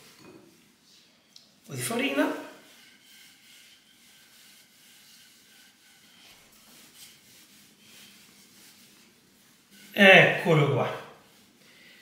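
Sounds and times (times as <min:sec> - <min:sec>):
rolling pin rubbing on dough: 0:02.6 - 0:11.6.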